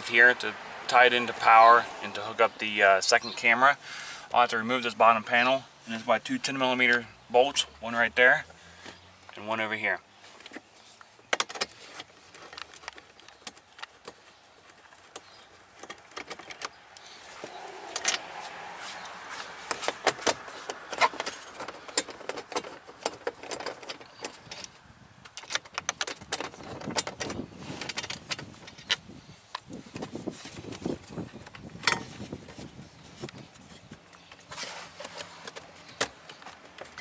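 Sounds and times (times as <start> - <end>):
rustling: 10.2 - 24.7
tool clicks and rattles: 19.7 - 29.7.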